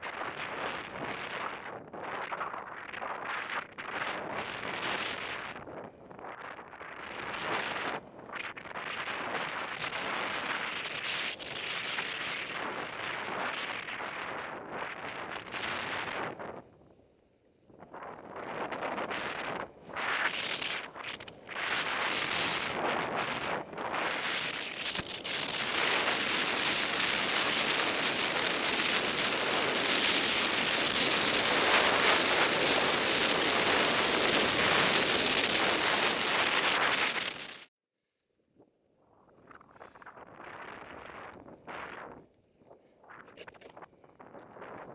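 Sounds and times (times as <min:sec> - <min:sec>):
wind on microphone: 0:00.0 - 0:17.0, 0:17.7 - 0:37.7, 0:39.2 - 0:44.9
skis scraping through snow: 0:18.4 - 0:37.7.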